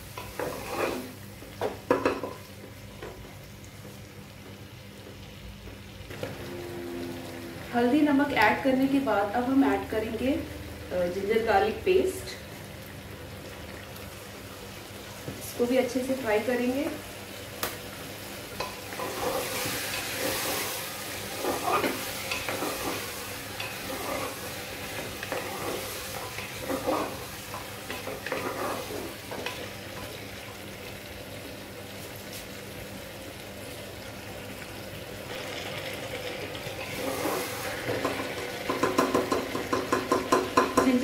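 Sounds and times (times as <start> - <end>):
liver sizzling in a pot: 0.0 - 41.0
wooden spatula scraping a pot: 0.2 - 1.2, 18.8 - 29.7, 36.8 - 39.3.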